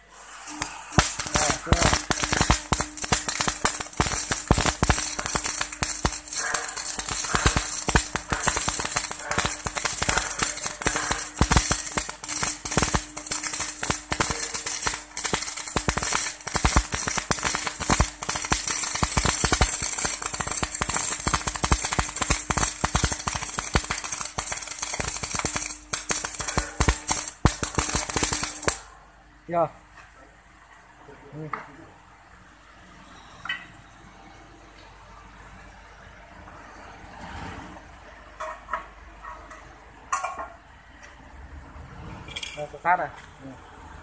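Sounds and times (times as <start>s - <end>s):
welding arc crackling: 0.0s - 29.0s
steady hum: 0.0s - 29.2s.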